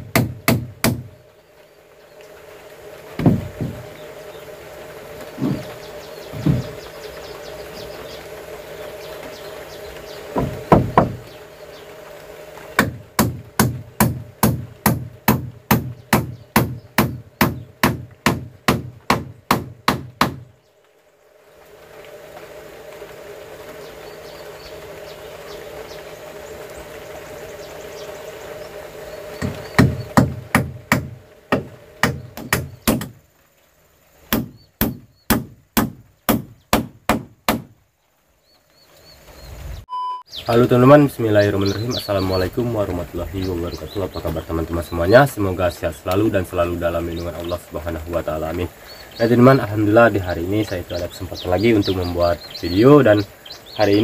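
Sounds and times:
hammer striking wood: 0.0 - 1.1, 3.2 - 3.8, 6.4 - 6.8, 10.3 - 11.3, 12.8 - 20.5, 29.4 - 33.2, 34.3 - 37.8.

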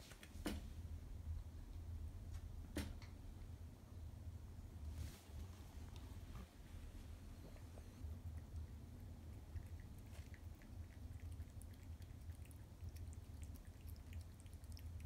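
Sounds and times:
low steady hum: 0.0 - 15.0
cat chewing food: 7.2 - 15.0.

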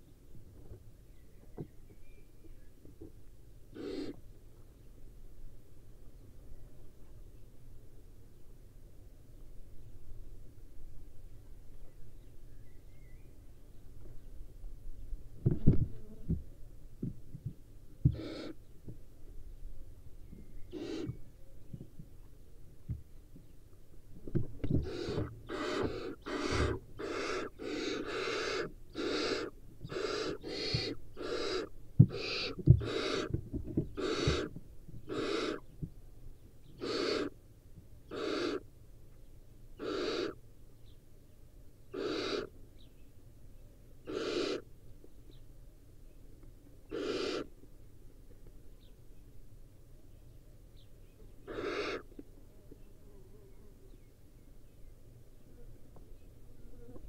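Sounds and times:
owl chicks hissing calls: 3.7 - 4.2, 18.1 - 18.6, 20.6 - 21.3, 24.7 - 35.8, 36.6 - 37.4, 38.0 - 38.7, 39.8 - 40.4, 41.8 - 42.6, 44.0 - 44.7, 46.8 - 47.6, 51.3 - 52.2.

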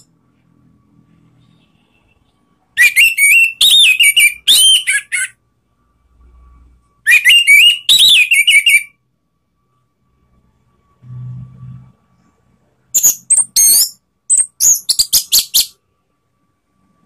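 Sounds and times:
thrush singing whistled notes: 2.8 - 5.4, 7.1 - 9.0, 13.0 - 15.8.

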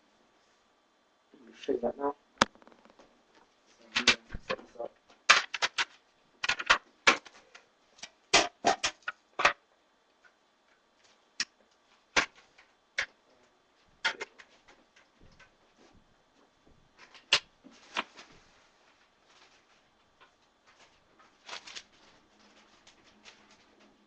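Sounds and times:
hard objects clicking and clacking: 5.3 - 7.3.

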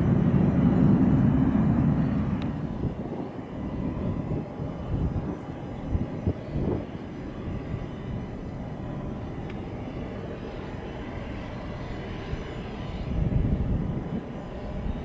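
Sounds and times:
airship propeller engines droning: 0.0 - 15.0
faint steady tones: 0.0 - 15.0.

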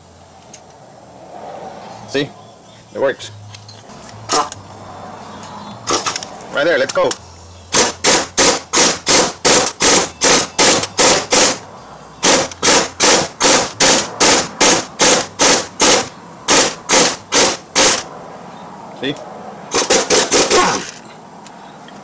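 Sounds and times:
impact wrench hammering: 5.9 - 6.2, 7.7 - 11.6, 12.2 - 18.1, 19.7 - 21.0.

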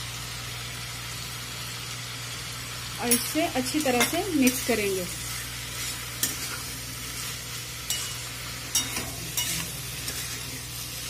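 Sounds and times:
vegetables sizzling in a pan: 0.0 - 11.0
metal spatula scraping pan: 3.9 - 10.8.

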